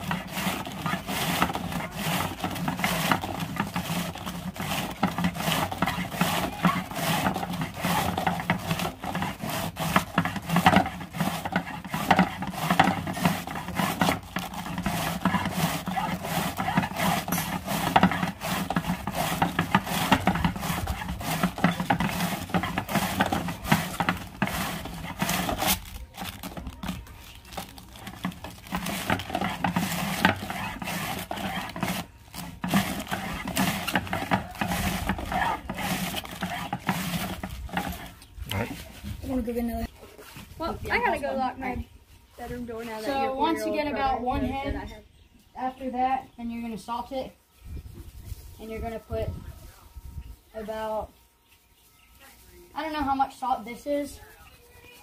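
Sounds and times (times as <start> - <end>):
cabbage shredding on blades: 0.0 - 38.9.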